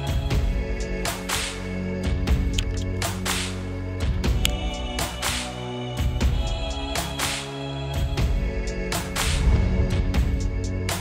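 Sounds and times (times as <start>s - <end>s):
synth chords over deep bass: 8.2s - 11.0s.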